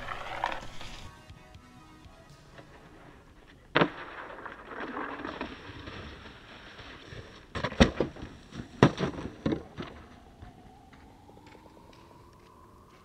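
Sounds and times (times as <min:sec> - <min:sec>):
snowboard scraping on stone: 0:00.0 - 0:01.1, 0:02.6 - 0:10.0
faint rising tone: 0:09.7 - 0:13.0.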